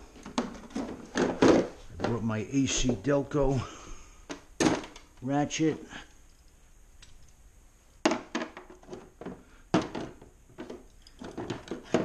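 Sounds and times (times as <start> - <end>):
metal tools clinking in plastic case: 8.6 - 12.0.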